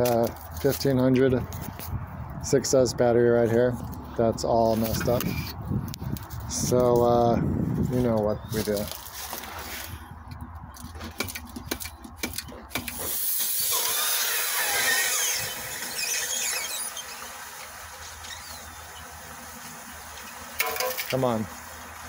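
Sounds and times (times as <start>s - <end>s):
battery venting gas hiss: 12.8s - 22.0s
squealing whistle: 13.7s - 17.3s, 18.2s - 18.7s.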